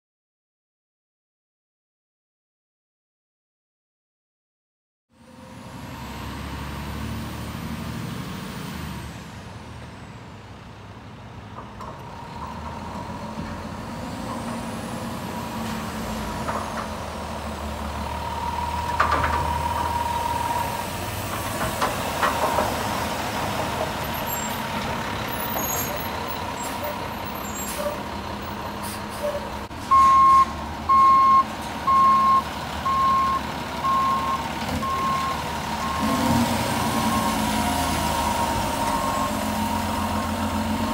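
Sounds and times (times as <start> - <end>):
reversing alarm beeping: 18.1 - 20.8, 29.9 - 40.6.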